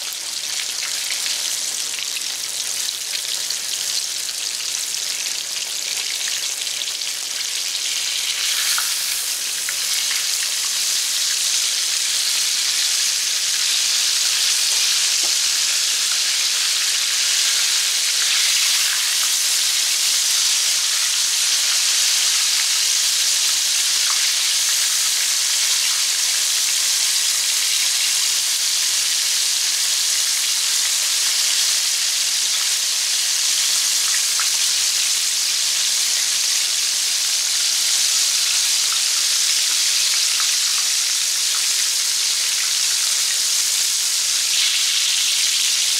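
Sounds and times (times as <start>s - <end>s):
fish frying in hot oil: 0.0s - 45.9s.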